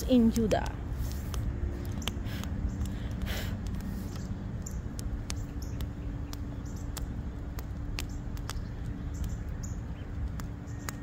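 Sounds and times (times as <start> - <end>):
faint steady hum: 0.0 - 11.0
steady low rumble: 0.0 - 11.0
wood fire crackling and popping: 0.1 - 11.0.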